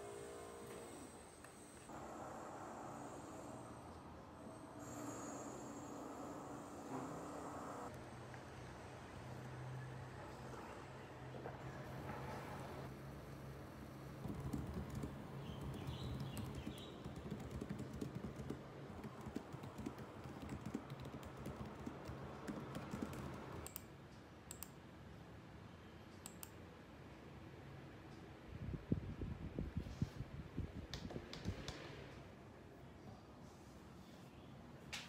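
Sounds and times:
typing on laptop keyboard: 14.2 - 23.9.

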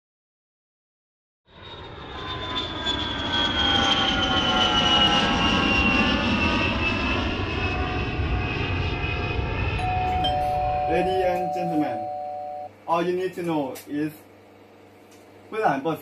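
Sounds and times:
airplane flying overhead: 1.5 - 12.7.

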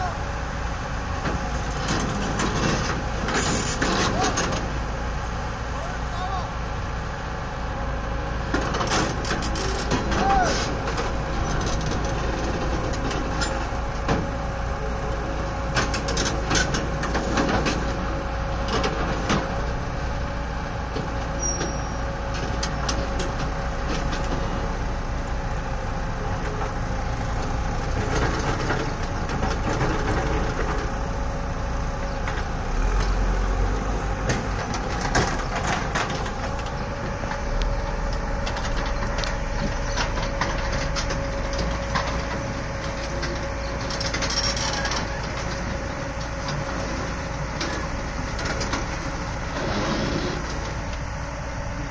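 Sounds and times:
excavator diesel engine running: 0.0 - 51.9
steel tracks clanking on trailer: 1.2 - 4.8, 8.5 - 19.8, 21.0 - 24.7, 34.2 - 51.1.

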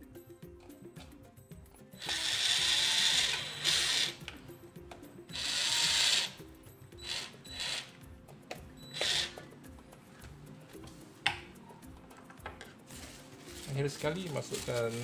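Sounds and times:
electric drill driving screws: 2.0 - 4.2, 5.3 - 6.4, 7.0 - 8.0, 8.9 - 9.4.

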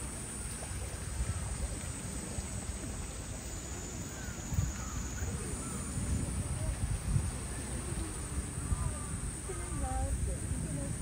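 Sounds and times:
faint distant voices: 0.4 - 11.0.

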